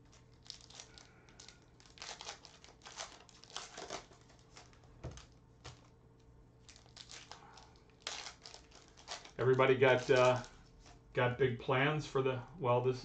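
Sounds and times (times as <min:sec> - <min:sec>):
foil wrapper crinkling and tearing: 0:00.0 - 0:05.9, 0:06.6 - 0:11.0.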